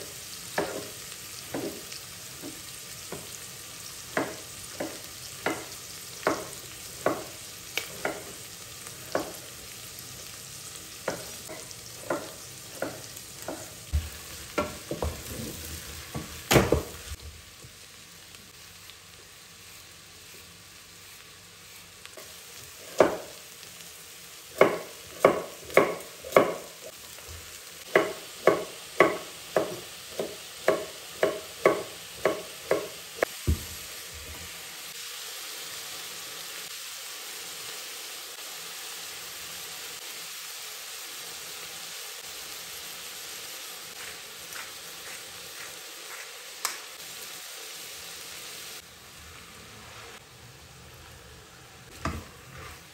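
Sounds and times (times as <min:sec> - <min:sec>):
vegetables sizzling in a pot: 0:00.0 - 0:52.9
knife chopping on cutting board: 0:00.6 - 0:00.9, 0:04.1 - 0:07.3, 0:11.0 - 0:15.5, 0:22.9 - 0:23.4, 0:24.6 - 0:26.7, 0:27.9 - 0:33.8.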